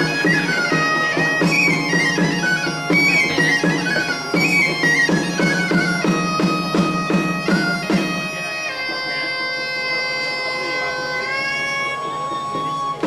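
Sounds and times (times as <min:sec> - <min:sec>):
hand drum beating: 0:00.0 - 0:08.3
bagpipe with drone: 0:00.0 - 0:13.0
pipe playing: 0:00.0 - 0:13.0.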